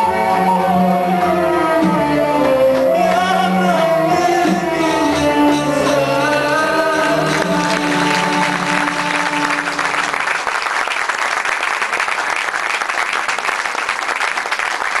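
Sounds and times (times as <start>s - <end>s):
choir and ensemble chord: 0.0s - 10.1s
audience applauding: 6.9s - 15.0s.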